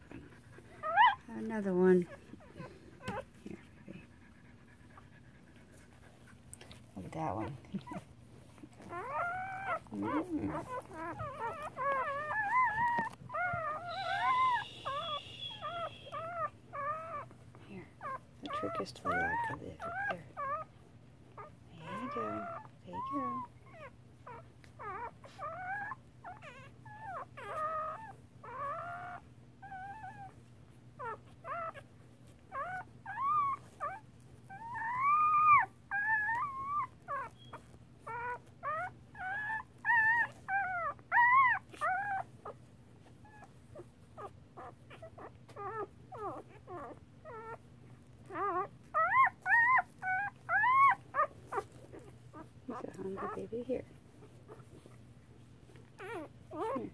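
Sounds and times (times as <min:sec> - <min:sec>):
puppies squealing and whimpering: 0:00.0 - 0:56.9.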